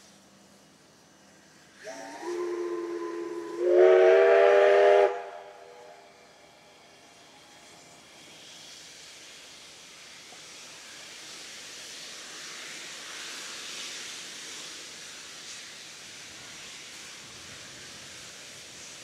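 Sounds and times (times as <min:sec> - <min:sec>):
steam hissing from locomotive: 0:00.0 - 0:19.0.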